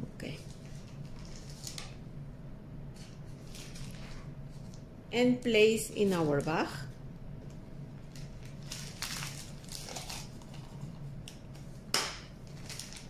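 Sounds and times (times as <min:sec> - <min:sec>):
plastic bag crinkling: 0:00.4 - 0:02.0, 0:03.4 - 0:04.3, 0:08.0 - 0:11.0, 0:12.5 - 0:13.0.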